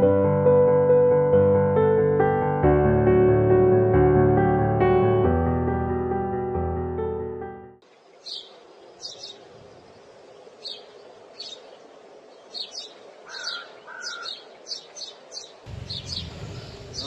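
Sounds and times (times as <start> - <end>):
small birds chirping: 7.8 - 17.0
low background rumble: 15.7 - 17.0.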